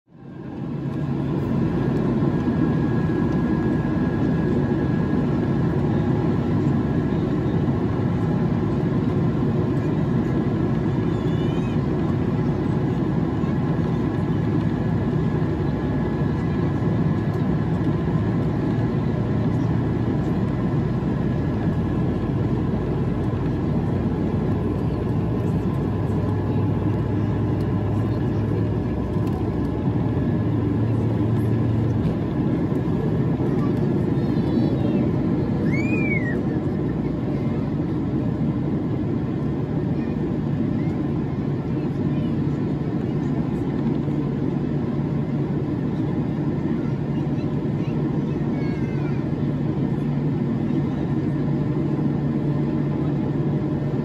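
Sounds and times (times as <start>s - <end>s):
faint steady engine whine: 0.0s - 54.0s
jet engines rumbling in cabin: 0.1s - 54.0s.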